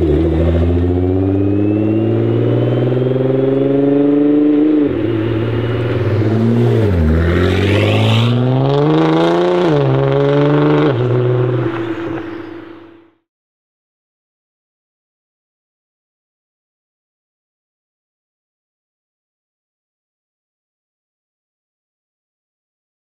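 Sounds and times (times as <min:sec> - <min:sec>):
car engine accelerating hard: 0:00.0 - 0:13.2
turbo whistle: 0:01.4 - 0:03.6.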